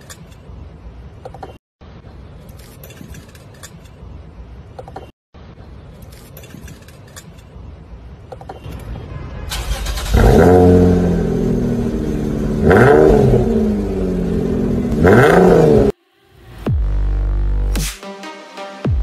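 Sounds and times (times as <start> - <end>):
car engine revving with turbo whistle: 9.5 - 16.0.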